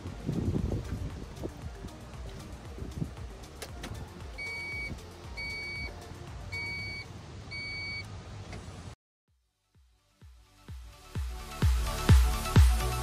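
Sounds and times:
dashboard warning beeps: 4.4s - 8.1s.

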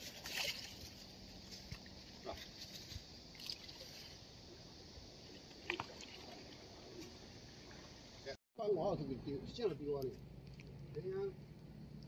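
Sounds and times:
calm sea water washing: 0.0s - 2.2s, 3.2s - 8.4s.

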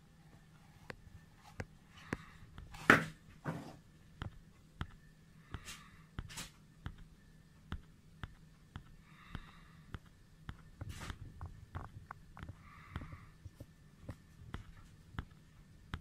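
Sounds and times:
faint evenly spaced ticks: 4.1s - 16.0s.

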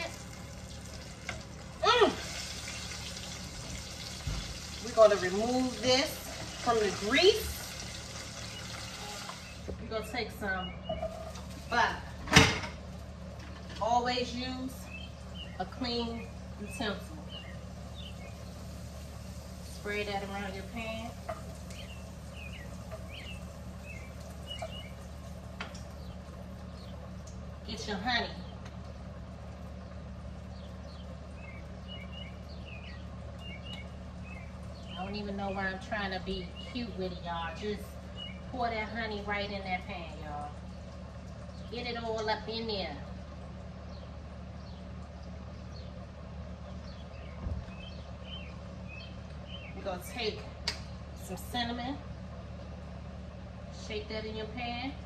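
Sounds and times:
steady low hum: 0.0s - 55.0s
small bird chirping: 10.4s - 11.9s, 14.8s - 18.8s, 19.8s - 25.2s, 29.8s - 35.3s, 36.3s - 38.6s, 46.6s - 49.9s.

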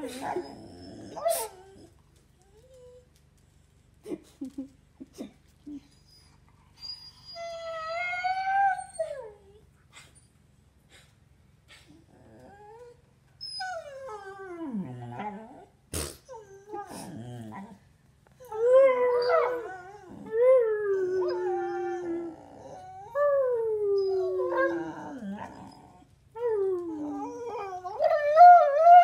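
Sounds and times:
dog howling and whining: 0.0s - 3.0s, 6.8s - 9.6s, 12.1s - 15.7s, 18.4s - 29.0s.

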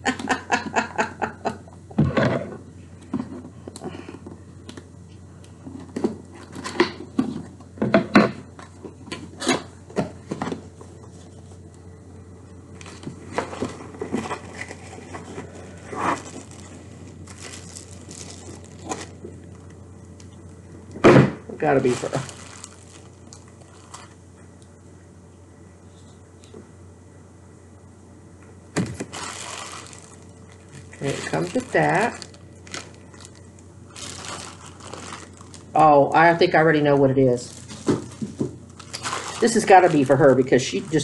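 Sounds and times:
plastic packaging rustling: 12.7s - 20.9s, 21.6s - 24.4s, 28.8s - 36.2s, 37.4s - 41.0s
cardboard rustling and tearing: 12.8s - 19.2s, 21.8s - 24.1s, 28.8s - 35.8s, 37.4s - 41.0s.

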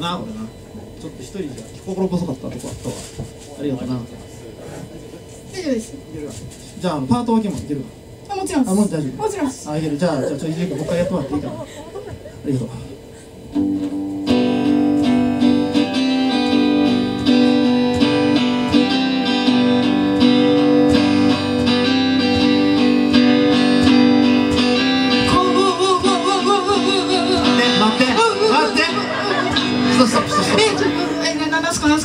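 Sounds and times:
live rock band playing: 13.6s - 32.0s
high line with heavy vibrato: 14.3s - 31.9s.

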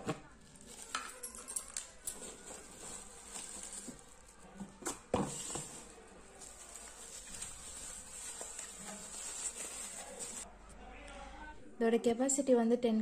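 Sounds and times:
bubble wrap crinkling: 0.3s - 4.6s, 5.3s - 10.5s.

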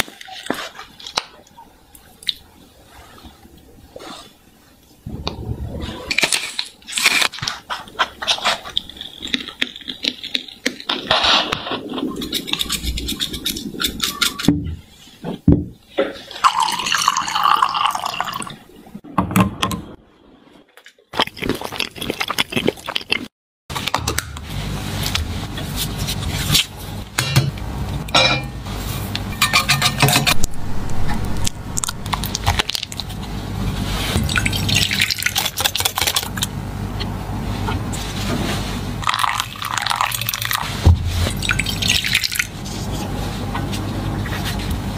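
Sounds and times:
low hum: 5.0s - 6.8s, 24.4s - 35.0s
utensils clicking and scraping: 6.1s - 14.6s
liquid being poured: 16.3s - 18.6s, 34.2s - 36.3s, 39.0s - 42.6s.

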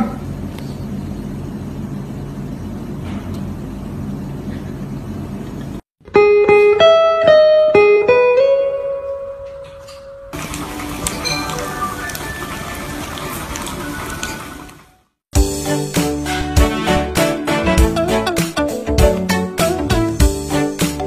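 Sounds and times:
plucked-string tune: 6.0s - 10.2s.

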